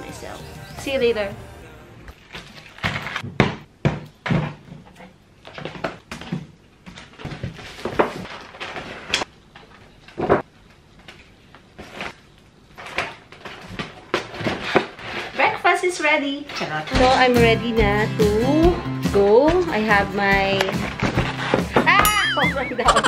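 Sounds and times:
paper bag rustling: 7.0 - 10.0.

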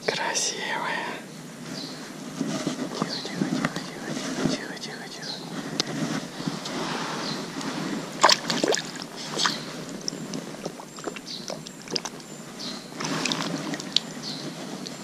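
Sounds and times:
stream trickling: 8.0 - 15.0.

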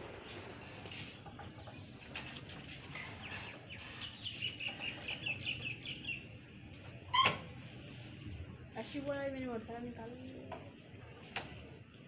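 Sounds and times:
birds chirping: 0.4 - 7.2.

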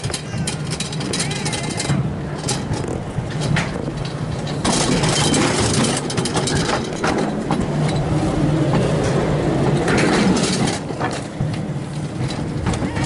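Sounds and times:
mechanical hum: 0.0 - 13.0
rattle of sled on metal track: 0.0 - 13.0.

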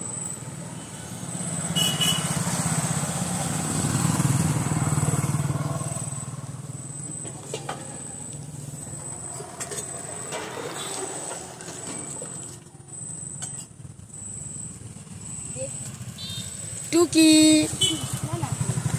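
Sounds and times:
motorcycle engine passing by: 0.9 - 7.0, 14.7 - 18.9.

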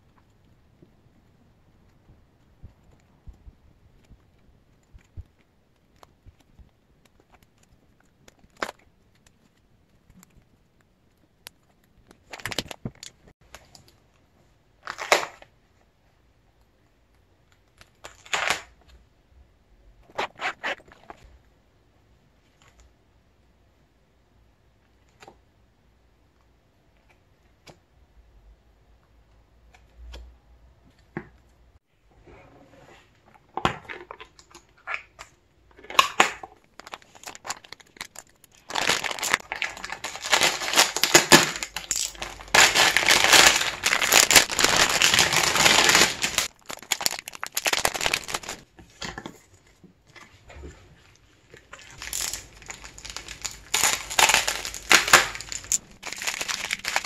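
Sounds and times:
plastic packaging crinkling and tearing: 4.0 - 10.5, 11.5 - 13.9, 14.8 - 15.5, 17.6 - 18.8, 34.1 - 48.7, 51.5 - 57.0
bubble wrap crinkling: 36.0 - 48.7, 51.5 - 57.0.

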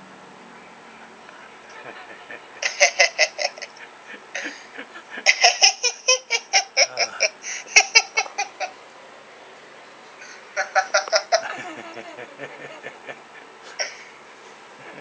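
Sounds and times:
person laughing hard: 1.6 - 8.7, 10.6 - 14.1.

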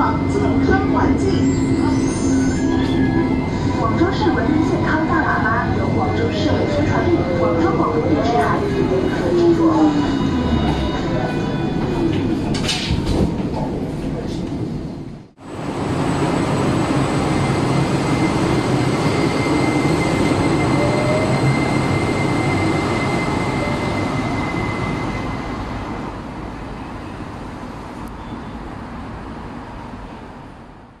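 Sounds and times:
tram motor whining: 0.0 - 12.9, 15.6 - 26.3.

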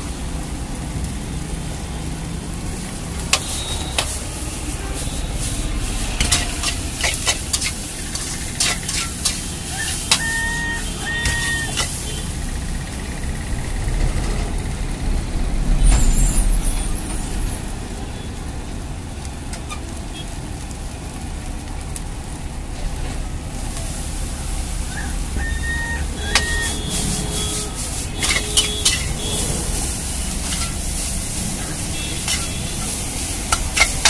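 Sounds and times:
heavy vehicle rumbling past: 0.0 - 9.8, 10.7 - 34.0
gas burner: 0.0 - 34.0
street traffic: 0.0 - 34.0
metal spatula scraping in wok: 3.3 - 12.0, 26.2 - 34.0.

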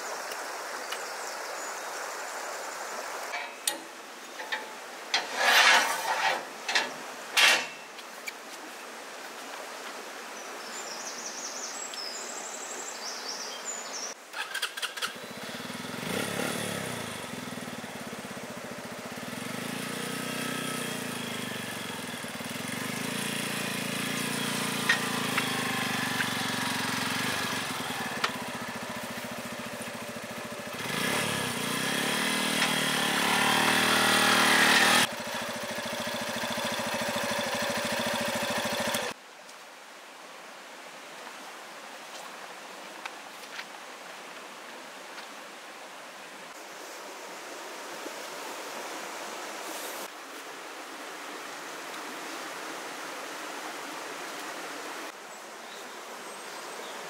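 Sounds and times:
motorcycle engine running and revving: 15.0 - 39.2.

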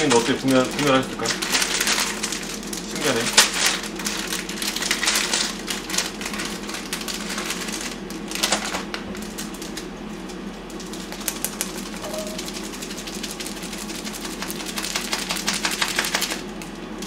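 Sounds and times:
plastic packets crinkling: 0.0 - 9.9
steady low hum: 0.0 - 17.0.

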